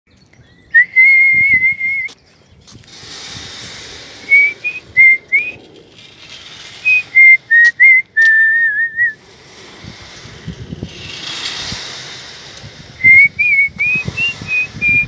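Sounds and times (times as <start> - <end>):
woman whistling a tune: 0.7 - 2.1, 6.9 - 9.2, 13.0 - 15.0.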